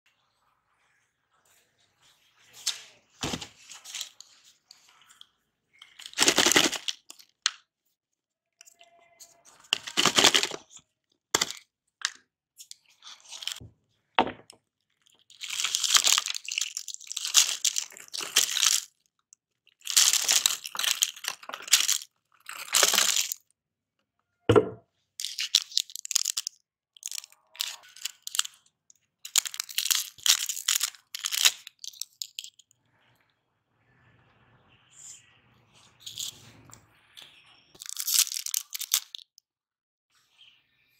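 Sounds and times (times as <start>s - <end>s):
plastic wrappers crinkling: 2.6s - 5.2s, 5.8s - 7.6s, 9.4s - 10.8s, 11.4s - 13.6s, 14.4s - 19.1s, 19.7s - 23.4s, 25.2s - 28.6s, 29.2s - 32.6s, 37.8s - 39.3s.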